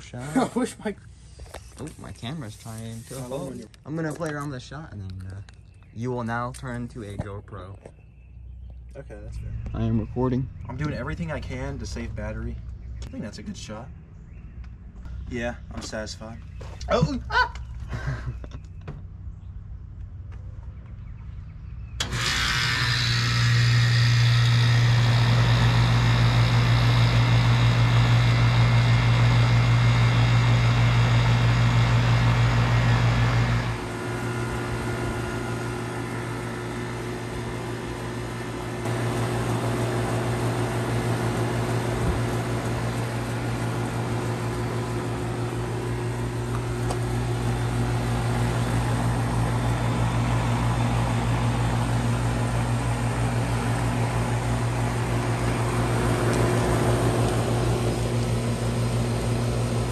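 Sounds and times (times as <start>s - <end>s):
compressor humming: 21.9s - 59.9s
condenser fan running: 22.0s - 59.9s.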